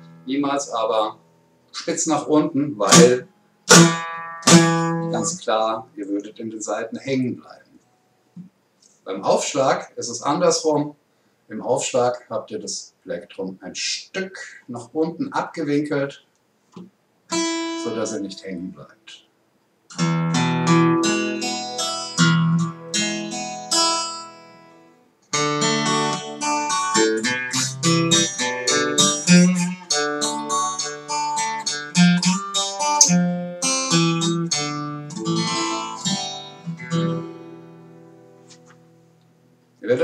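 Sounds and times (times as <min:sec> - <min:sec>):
acoustic guitar picked notes: 0:00.0 - 0:05.4, 0:17.3 - 0:18.4, 0:19.9 - 0:39.6.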